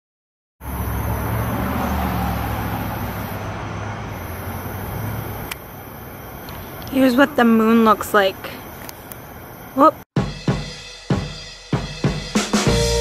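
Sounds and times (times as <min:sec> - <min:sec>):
road vehicles rumbling: 0:00.6 - 0:10.1.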